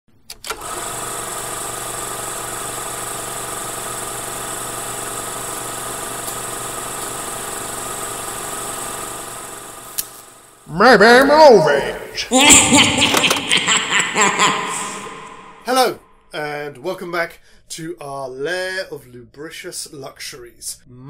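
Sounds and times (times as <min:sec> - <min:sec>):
mechanical hum with whirring drone: 0:00.3 - 0:10.7.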